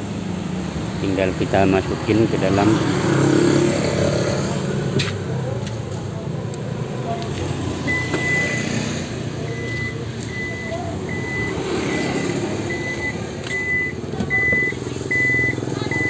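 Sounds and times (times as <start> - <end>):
high-pitched warning beeps: 7.8 - 16.0.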